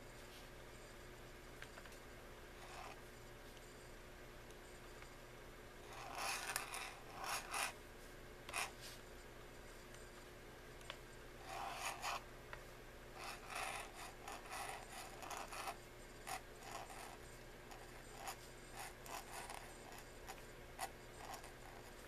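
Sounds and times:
faint steady hum: 0:00.0 - 0:22.0
pen nib scratching on paper: 0:05.9 - 0:07.8, 0:11.4 - 0:12.2, 0:13.2 - 0:22.0.

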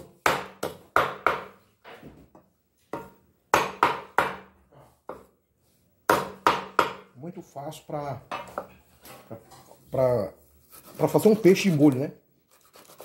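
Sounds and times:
knife chopping on wooden board: 0:00.0 - 0:01.6, 0:02.9 - 0:04.5, 0:06.1 - 0:07.1.

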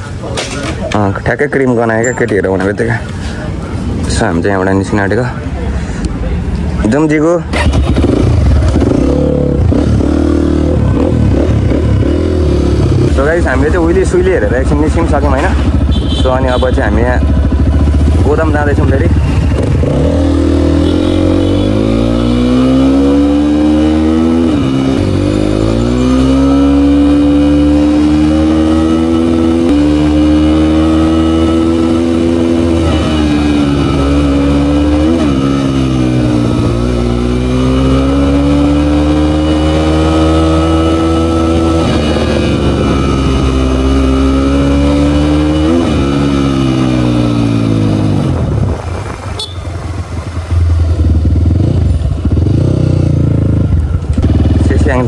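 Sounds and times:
dirt bike engine revving: 0:07.5 - 0:14.2, 0:14.8 - 0:48.6, 0:50.4 - 0:55.0.

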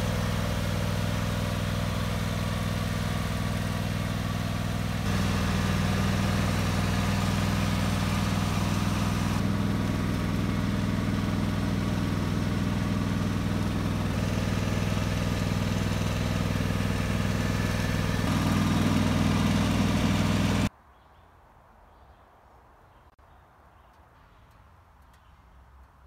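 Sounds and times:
lawn tractor engine running: 0:00.0 - 0:20.7.

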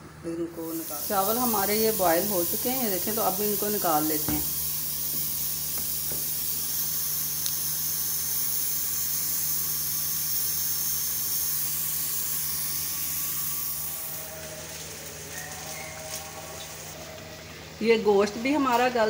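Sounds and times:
water boiling in pot: 0:00.8 - 0:13.1.

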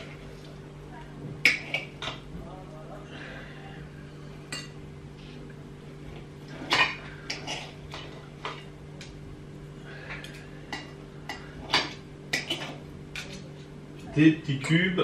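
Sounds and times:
cutlery scraping ceramic plate: 0:06.5 - 0:08.7, 0:10.2 - 0:13.4.

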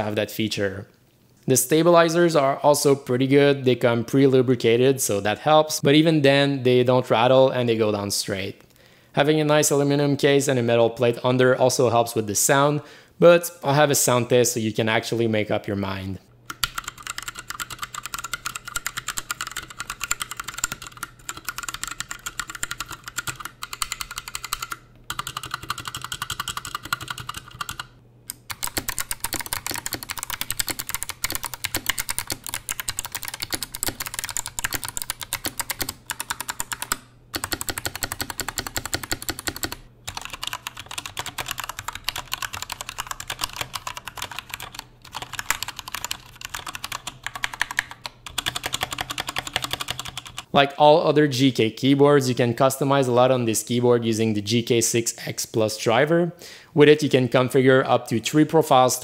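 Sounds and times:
fast mechanical keyboard typing: 0:16.5 - 0:50.5.

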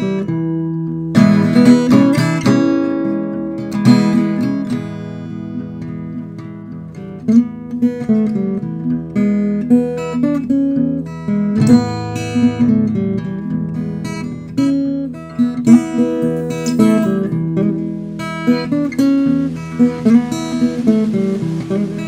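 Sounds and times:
acoustic guitar blues: 0:00.0 - 0:22.0.

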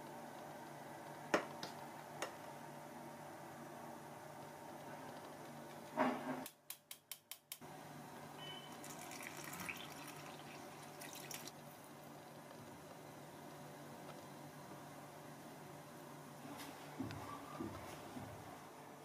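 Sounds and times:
liquid pouring into flour: 0:08.7 - 0:11.7.

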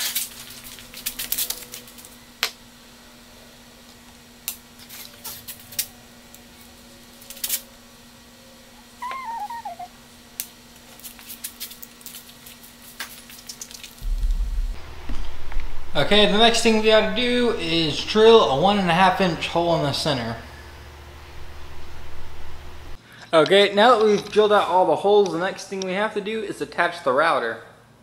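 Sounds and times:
wavering squeak: 0:09.0 - 0:09.9
steady low hum: 0:13.9 - 0:23.3.

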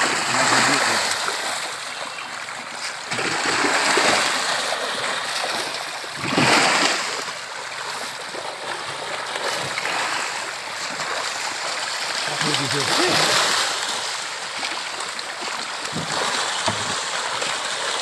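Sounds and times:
fish splashing at water surface: 0:00.0 - 0:18.0.

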